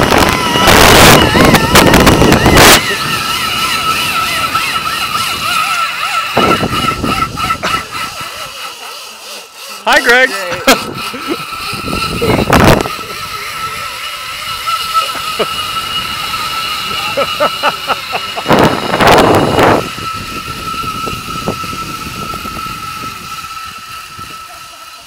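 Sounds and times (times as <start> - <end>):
loud gusts of noise: 0.0 - 8.5, 10.6 - 24.4
pulleys whining on steel cable: 0.0 - 25.0.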